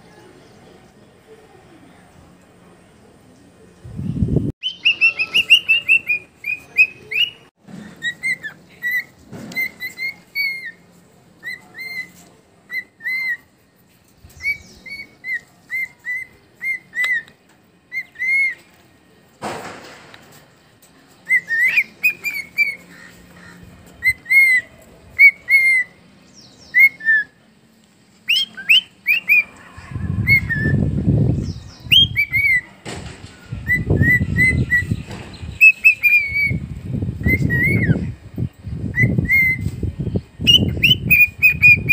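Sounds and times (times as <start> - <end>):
cockatiel whistling: 4.6 - 10.8, 11.4 - 13.5, 14.4 - 17.3, 17.9 - 18.6, 21.2 - 22.8, 24.0 - 25.9, 26.7 - 27.3, 28.3 - 29.5, 31.8 - 32.6, 33.6 - 35.0, 35.6 - 36.6, 37.2 - 38.0, 38.9 - 39.7, 40.4 - 41.9
low rumbling noise: 29.4 - 32.4.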